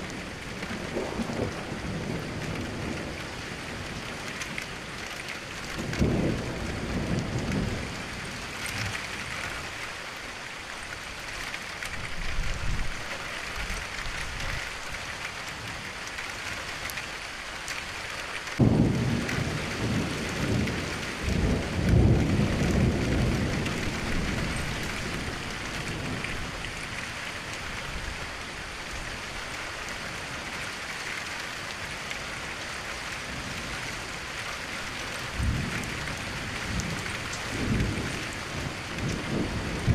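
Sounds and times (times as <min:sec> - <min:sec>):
thunder rumbling: 0:00.0 - 0:04.3, 0:05.6 - 0:09.7, 0:18.6 - 0:27.0, 0:35.2 - 0:39.9
steady rain: 0:00.0 - 0:39.9.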